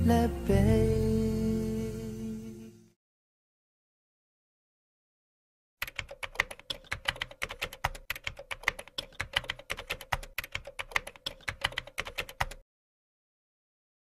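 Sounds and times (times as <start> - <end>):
keyboard typing clicks: 5.8 - 12.6.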